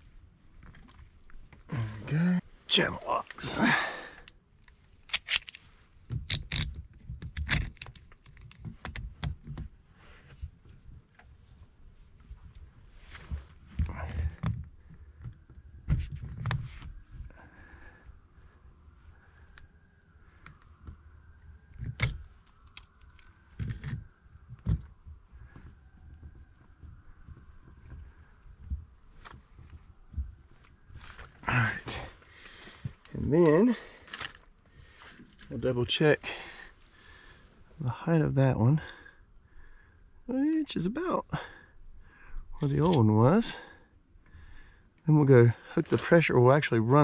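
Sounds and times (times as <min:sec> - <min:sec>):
pliers clicking and clanking on metal: 0:05.0 - 0:05.6.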